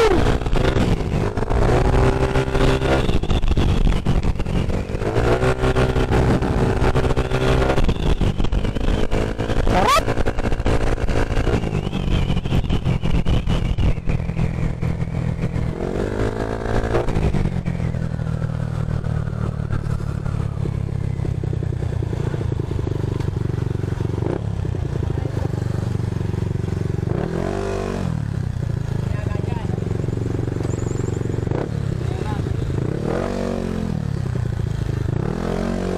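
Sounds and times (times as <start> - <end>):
scooter engine accelerating: 0.0 - 13.8, 14.5 - 35.9.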